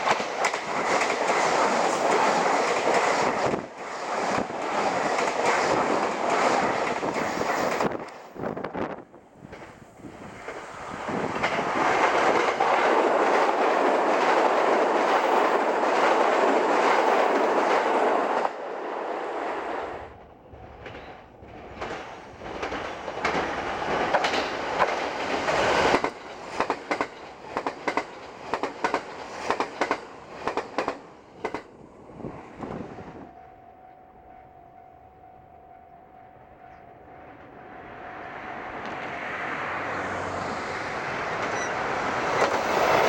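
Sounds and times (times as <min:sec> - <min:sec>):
train wheels clicking over rail joints: 0:00.0 - 0:08.4, 0:09.4 - 0:18.7, 0:20.8 - 0:31.9, 0:41.2 - 0:43.0
train passing at high speed: 0:00.0 - 0:43.0.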